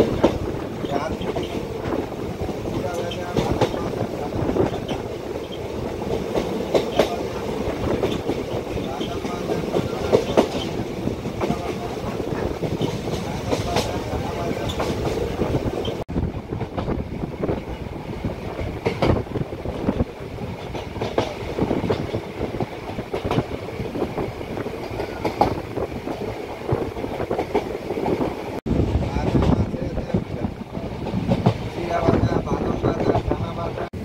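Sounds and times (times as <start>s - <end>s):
sharp rail clacks: 0.0s - 16.0s, 19.8s - 23.5s
train wheel and rail noise: 0.0s - 34.0s.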